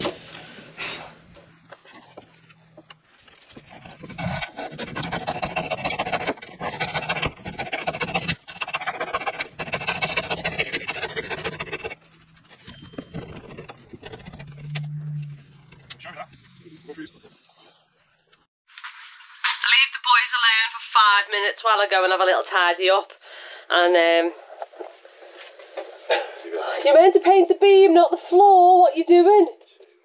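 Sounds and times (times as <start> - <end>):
handsaw cutting wood: 3.3 - 14.6.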